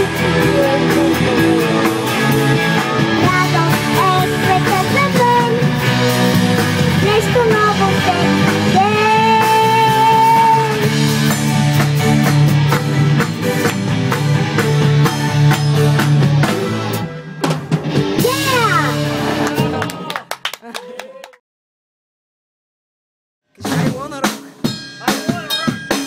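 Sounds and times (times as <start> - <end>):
drum kit: 0.0 - 20.2, 23.5 - 26.0
electric guitar: 0.0 - 20.2
bass guitar: 0.0 - 20.3, 23.5 - 26.0
girl singing: 3.1 - 5.7, 7.0 - 10.8.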